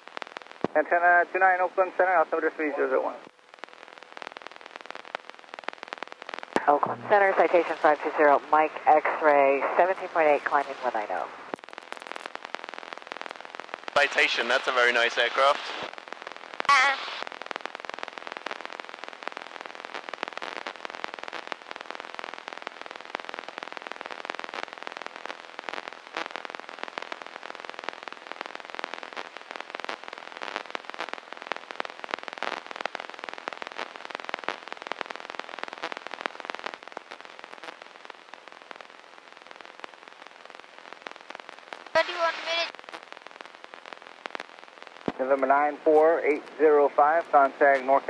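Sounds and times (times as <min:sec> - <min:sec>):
crackling radio static: 0:00.0 - 0:48.0.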